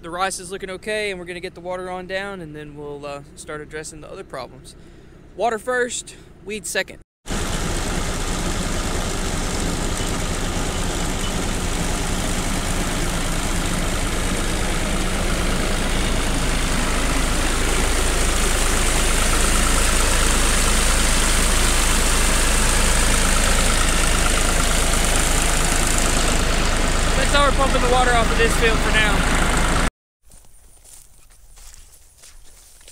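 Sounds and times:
tractor engine running: 7.3s - 29.9s
water gushing from pipe onto tarp: 16.9s - 29.1s.

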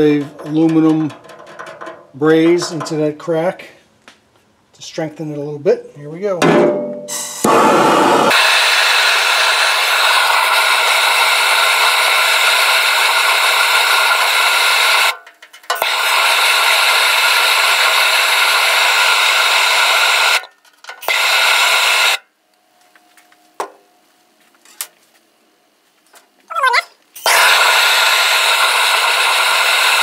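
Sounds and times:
gas torch flame hissing: 7.1s - 15.2s, 15.8s - 22.2s, 27.2s - 30.0s.

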